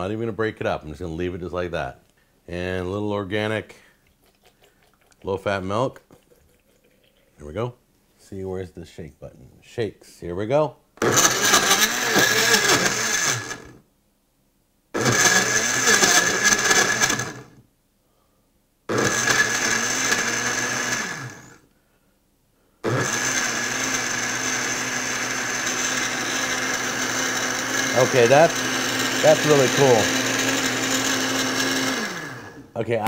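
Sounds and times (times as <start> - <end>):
blender motor pulsing: 11.0 - 13.8, 15.0 - 17.6, 18.9 - 21.6, 22.8 - 32.6.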